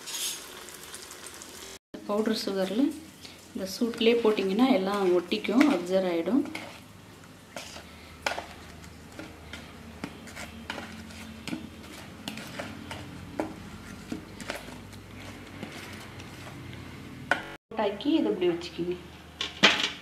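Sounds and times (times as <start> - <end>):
spoon scraping plastic bowl: 4.2 - 6.9, 7.5 - 16.8.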